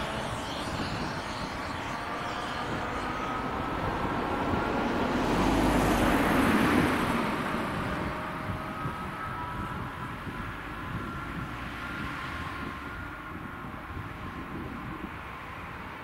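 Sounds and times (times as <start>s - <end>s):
car driving past: 0.0s - 9.8s.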